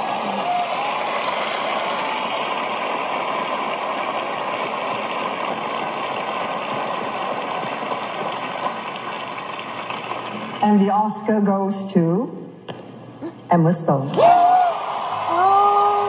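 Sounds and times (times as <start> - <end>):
audience applauding through tv speaker: 0.0 - 10.6, 14.2 - 16.0.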